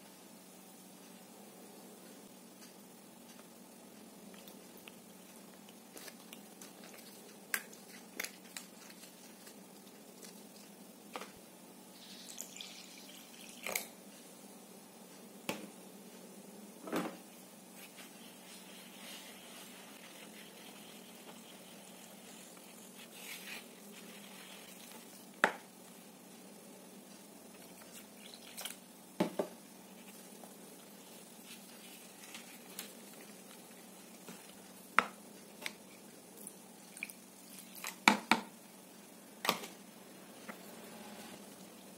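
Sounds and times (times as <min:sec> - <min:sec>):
liquid pouring: 0:12.0 - 0:13.9.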